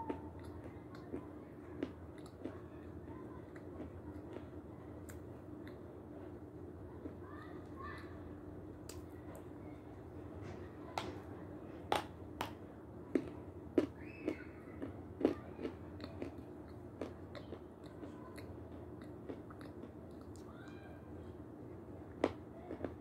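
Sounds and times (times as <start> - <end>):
crunching and chewing: 0.0 - 8.2, 11.9 - 20.5, 22.0 - 23.0.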